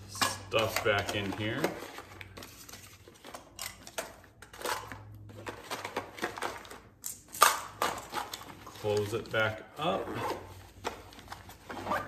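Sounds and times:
plastic items clicking and rustling: 0:00.1 - 0:09.6.

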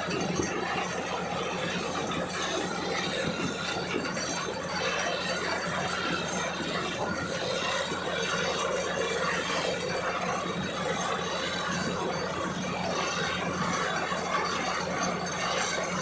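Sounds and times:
drilling rig running: 0:00.0 - 0:16.0.

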